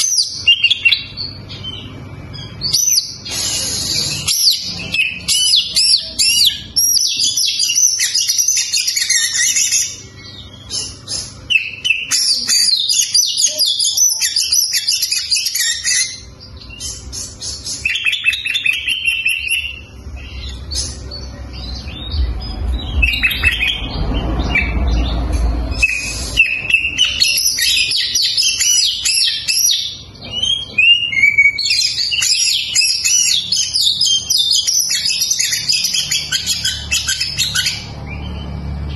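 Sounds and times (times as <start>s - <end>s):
bird singing whistles and trills: 0.0s - 38.9s
low rumble: 19.9s - 26.4s.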